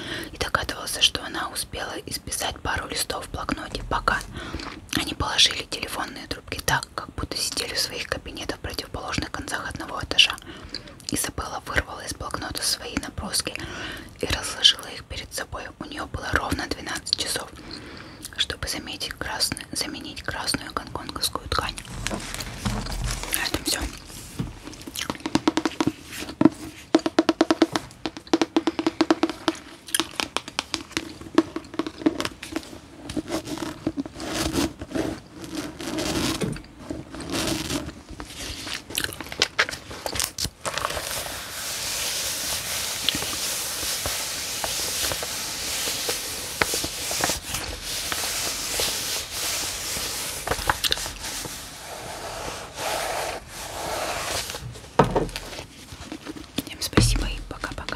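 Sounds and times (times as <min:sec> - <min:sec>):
book pages rustling: 0:21.6 - 0:27.0, 0:30.1 - 0:57.9.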